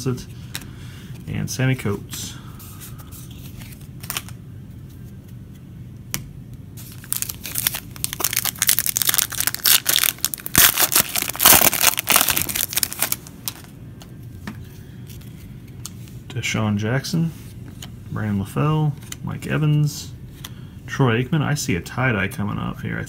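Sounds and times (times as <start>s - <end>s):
foil wrapper crinkling and tearing: 6.8s - 13.7s.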